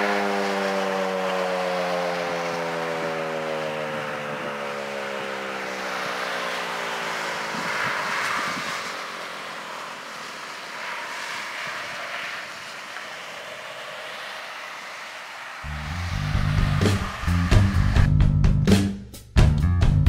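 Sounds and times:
warning siren winding down: 0.0s - 18.4s
wind on microphone: 7.3s - 9.2s, 15.6s - 18.2s.

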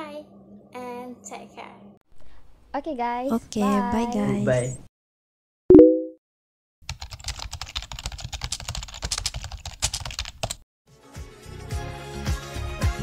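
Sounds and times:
short loud beep: 5.7s - 6.2s
computer keyboard typing: 6.9s - 10.6s.

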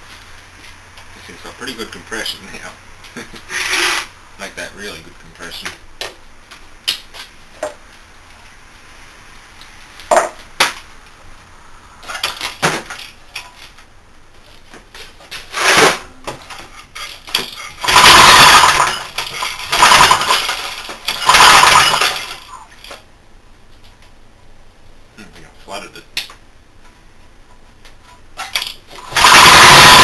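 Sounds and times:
engine pull-starter rasping whir: 29.0s - 30.0s.

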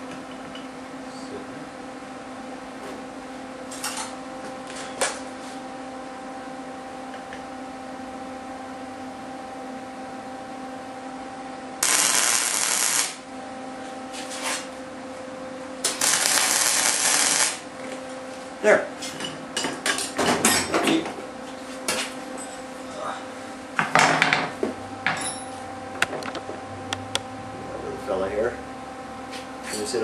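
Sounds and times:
welding arc crackling: 11.8s - 13.3s, 15.8s - 17.7s.

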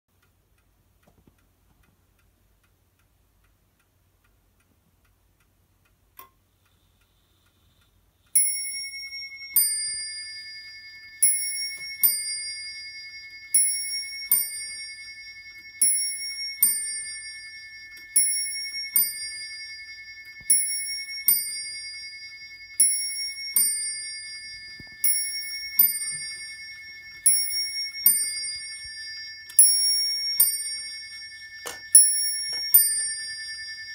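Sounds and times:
clock chiming two-tone strikes: 8.4s - 33.9s.

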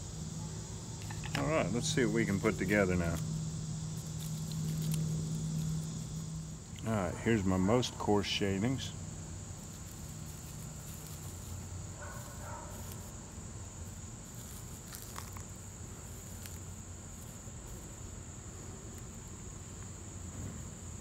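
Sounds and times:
high-pitched insect drone: 0.0s - 21.0s
wood shavings crackling: 1.0s - 20.0s.

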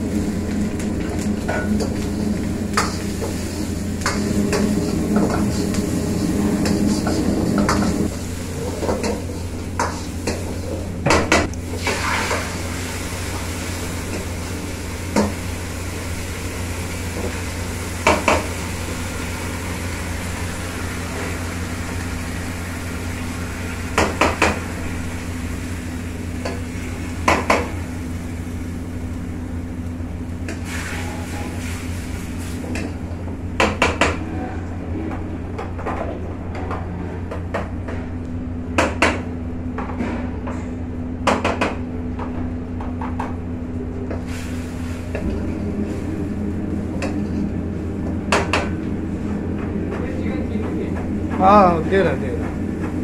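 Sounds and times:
food sizzling: 0.0s - 29.7s, 44.2s - 48.0s
low kitchen hum: 0.0s - 53.0s.

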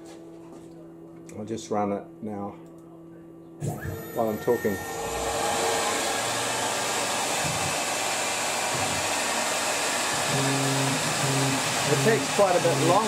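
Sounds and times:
lathe steady rushing hiss: 3.7s - 13.0s.

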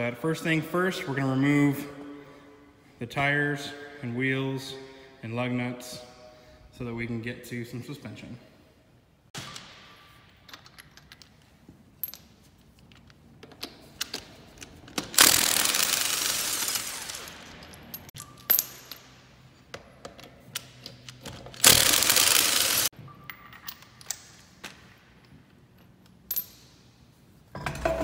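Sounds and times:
impact wrench hammering: 15.0s - 17.8s, 21.6s - 22.9s.

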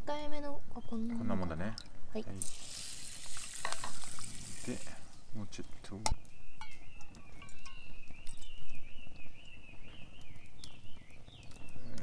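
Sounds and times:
water pouring into metal cup: 2.4s - 4.9s.

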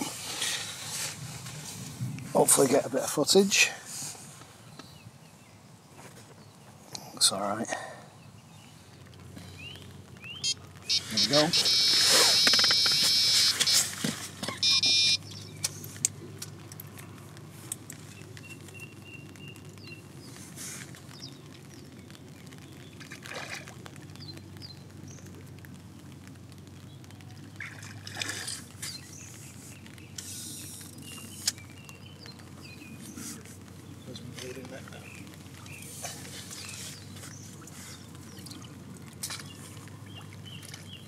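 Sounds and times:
bite alarm beeping: 10.4s - 13.8s, 14.6s - 15.2s
rustles and knocks: 12.1s - 14.6s.

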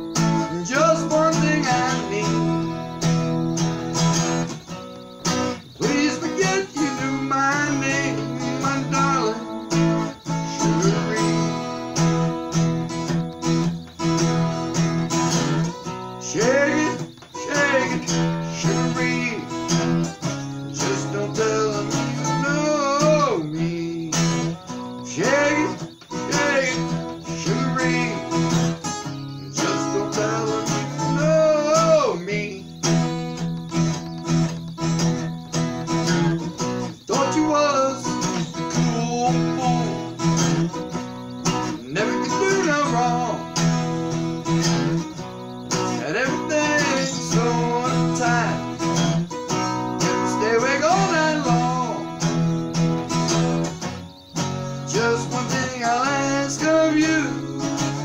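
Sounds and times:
man singing: 0.0s - 3.0s, 5.7s - 12.3s, 16.2s - 33.4s, 36.0s - 40.8s, 41.7s - 43.8s, 44.4s - 52.5s, 54.8s - 58.0s
acoustic guitar strumming: 0.0s - 58.0s.

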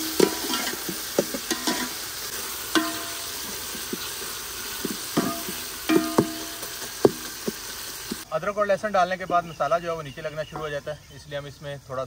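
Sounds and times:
masala sizzling in a metal pot: 0.0s - 11.5s
metal utensil knocking on pot: 2.7s - 3.4s, 4.8s - 7.2s.

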